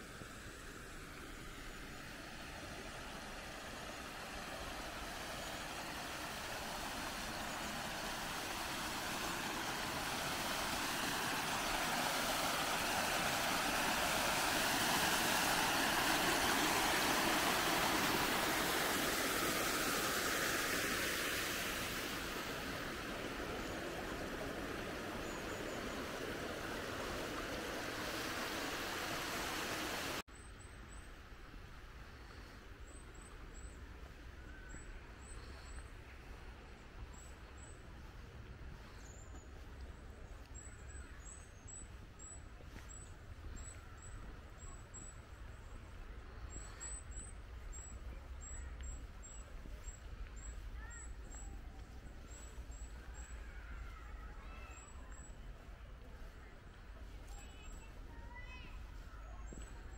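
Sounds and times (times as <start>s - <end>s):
water rushing down stone cascade: 2.3s - 30.2s.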